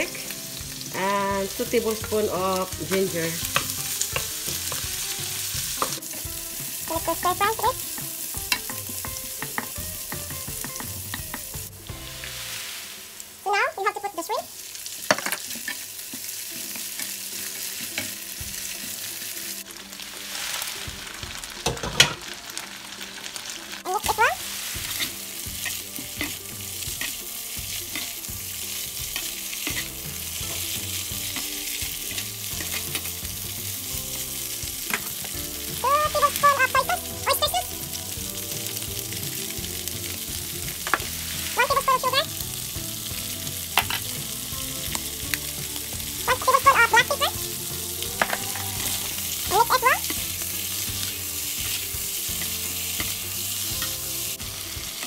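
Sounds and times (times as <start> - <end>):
food sizzling in hot oil: 0.0 - 55.0
spatula scraping pan: 24.4 - 33.2, 48.0 - 54.0.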